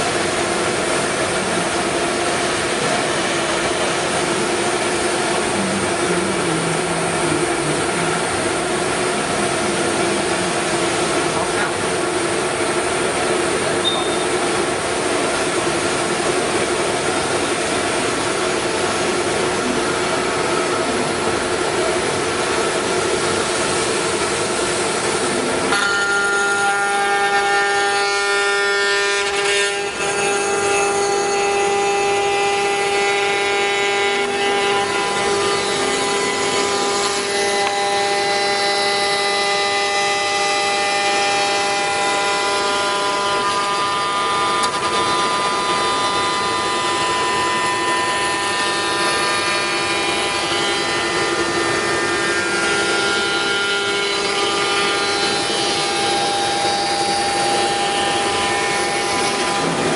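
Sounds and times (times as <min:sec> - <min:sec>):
end mill cutting: 0:00.0 - 0:59.9
router spindle whining: 0:02.3 - 0:14.3, 0:25.0 - 0:59.9.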